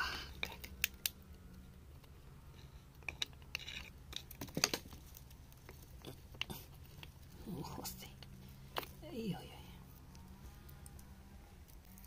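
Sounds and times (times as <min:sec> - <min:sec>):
metal tools scraping wet clay: 0:02.5 - 0:04.4.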